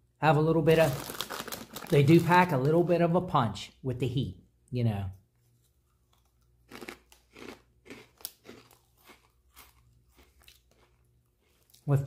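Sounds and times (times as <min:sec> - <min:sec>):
man chewing crunchy snack: 0:05.8 - 0:11.9.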